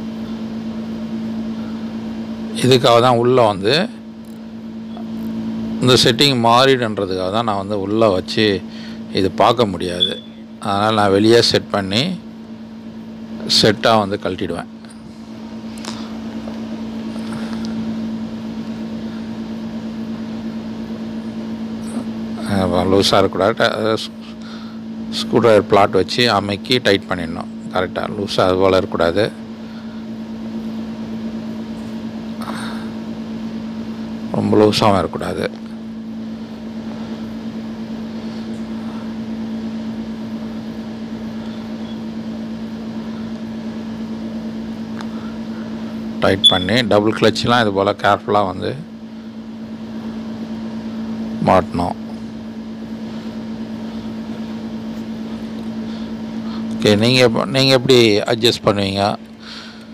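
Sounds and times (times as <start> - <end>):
steady machine hum: 0.0 - 59.9.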